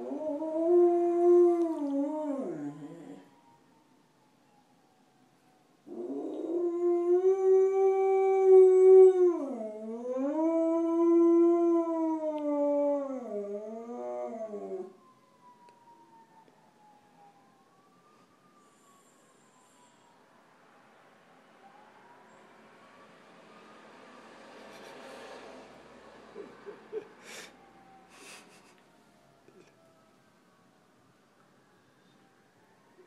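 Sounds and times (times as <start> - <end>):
dog howling: 0.0 - 3.3
faint siren: 0.0 - 33.0.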